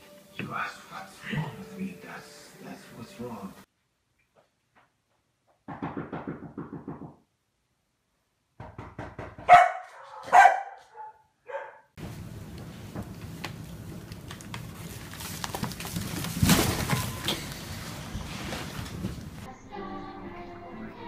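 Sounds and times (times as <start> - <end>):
dog barking: 9.4 - 12.0.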